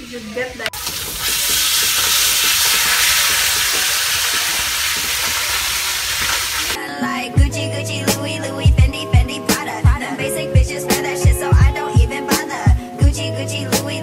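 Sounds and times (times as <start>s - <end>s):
loud steady hiss: 0.0s - 6.8s
background music with a beat: 6.8s - 14.0s.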